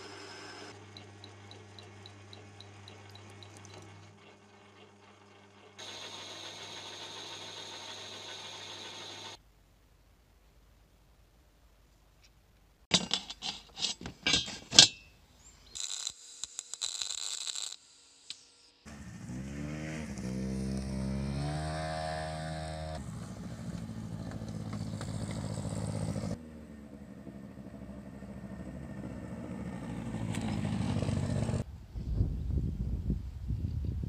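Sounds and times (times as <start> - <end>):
engine revving and running: 18.9 - 31.6.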